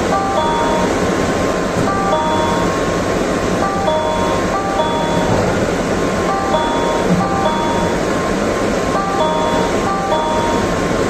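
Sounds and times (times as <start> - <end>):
train rumble and hiss: 0.0 - 11.0
short electronic door chime: 0.1 - 1.0, 1.9 - 2.8, 3.6 - 8.2, 9.0 - 10.9.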